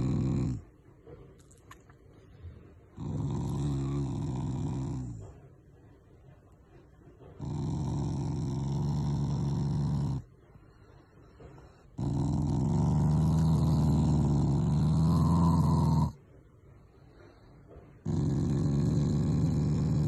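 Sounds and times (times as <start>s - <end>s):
dog growling: 0.0s - 0.7s, 2.9s - 5.5s, 7.2s - 10.3s, 11.4s - 16.2s, 18.0s - 20.0s.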